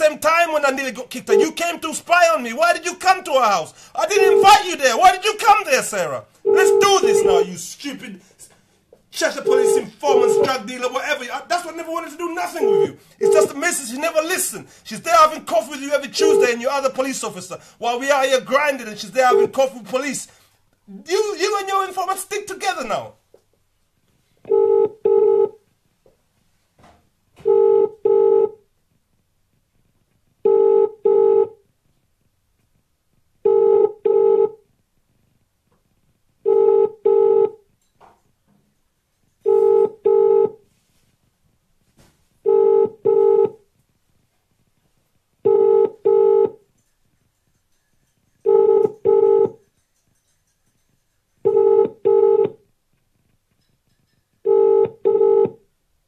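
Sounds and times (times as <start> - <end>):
telephone ringing tone: 4.0 - 4.8, 6.4 - 7.5, 9.4 - 10.6, 12.6 - 13.5, 24.5 - 25.6, 27.4 - 28.6, 30.5 - 31.6, 33.5 - 34.6, 36.5 - 37.6, 39.4 - 40.6, 42.5 - 43.6, 45.5 - 46.6, 48.4 - 49.6, 51.5 - 52.6, 54.4 - 55.6.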